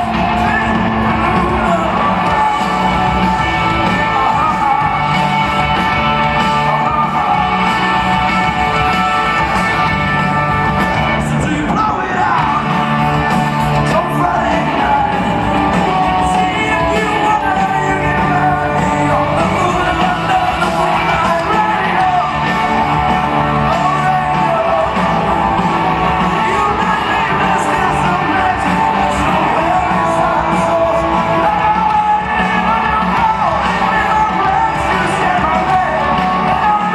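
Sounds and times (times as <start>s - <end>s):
electric guitars and bass: 0.0s - 36.9s
man singing: 0.0s - 36.9s.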